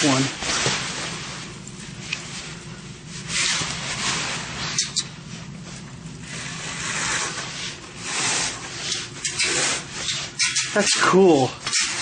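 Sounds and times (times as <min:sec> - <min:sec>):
window frame scraping: 0:06.2 - 0:12.0.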